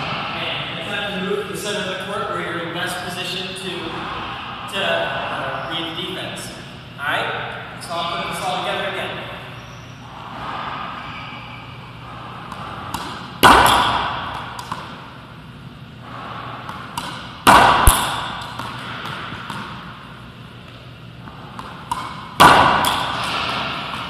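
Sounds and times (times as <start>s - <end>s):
racquet striking ball: 12.4s - 15.4s, 16.5s - 24.0s
ball bouncing on wooden floor: 16.7s - 19.8s.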